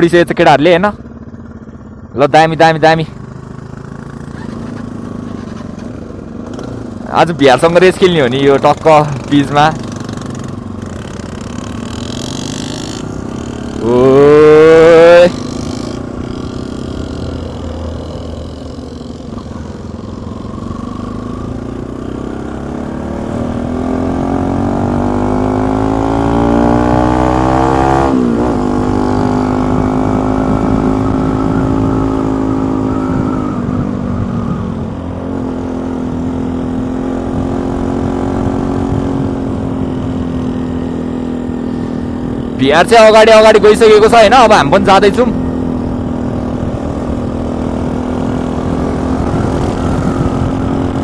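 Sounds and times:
motorcycle engine accelerating: 0.0s - 51.0s
wind rumble on microphone: 29.3s - 35.3s, 36.1s - 40.9s, 45.7s - 51.0s.

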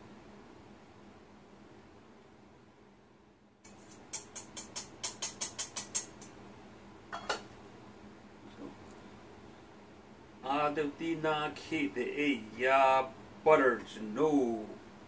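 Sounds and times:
eggs being beaten in a bowl: 3.7s - 6.3s.

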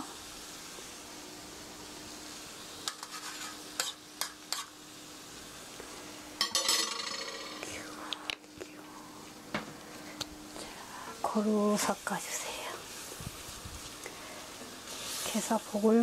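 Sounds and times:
hot pan hissing: 0.0s - 8.0s, 10.4s - 16.0s
spoon clinking and scraping pan: 2.8s - 4.7s, 6.4s - 7.6s.

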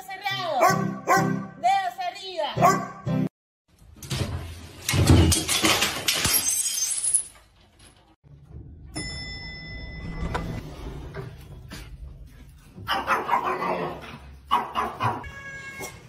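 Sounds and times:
household items crashing down: 4.1s - 8.1s.

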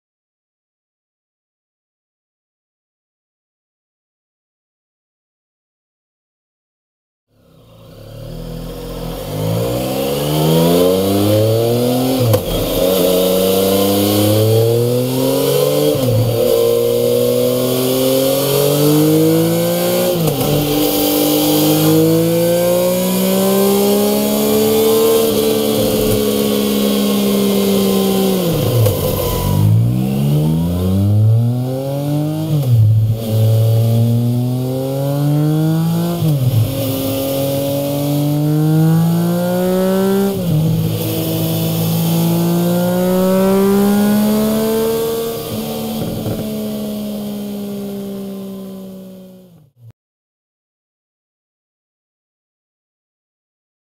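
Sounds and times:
motorcycle engine revving hard: 7.7s - 49.6s.

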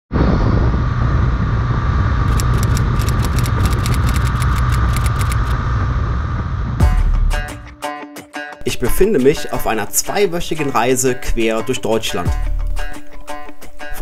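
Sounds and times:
wind and road noise: 0.1s - 6.8s.

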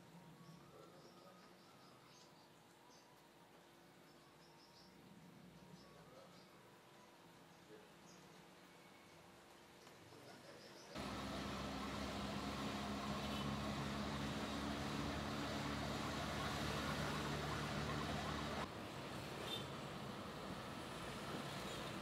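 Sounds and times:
vehicle engine running: 11.0s - 18.7s
road and traffic noise: 11.0s - 22.0s.

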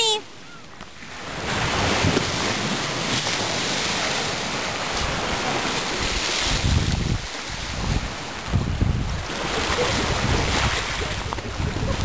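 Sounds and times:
wind blowing on microphone: 4.8s - 12.0s.

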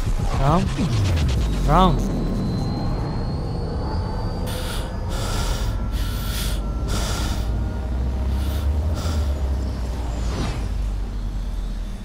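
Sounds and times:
low rumbling drone: 0.0s - 12.0s
heavy noisy breaths: 4.4s - 10.1s.

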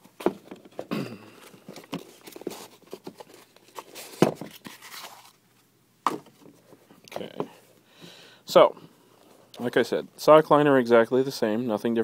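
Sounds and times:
cardboard rustling and crinkling: 0.0s - 5.4s
shoe handling taps and scrapes: 6.0s - 7.5s.

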